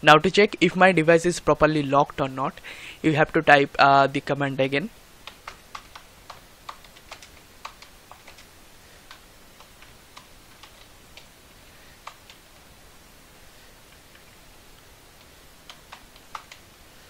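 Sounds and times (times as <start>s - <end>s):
computer keyboard keystrokes: 5.2s - 11.3s, 12.0s - 12.4s, 15.2s - 16.7s.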